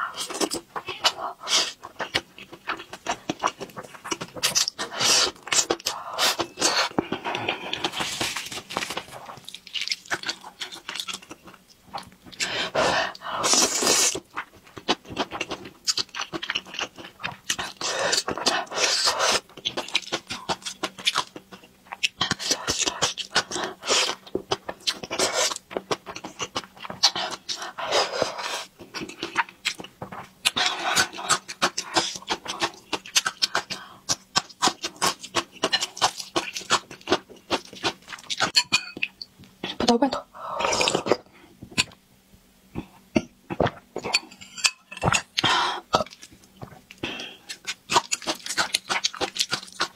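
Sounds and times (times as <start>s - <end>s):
slurping noodles: 12.6s - 14.2s.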